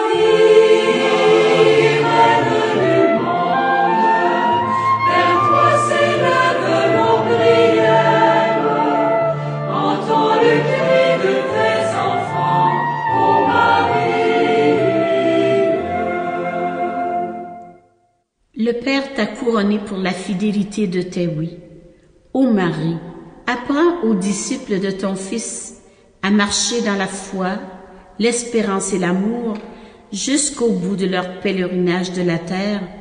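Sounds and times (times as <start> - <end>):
choir singing a hymn: 0.0 - 17.7.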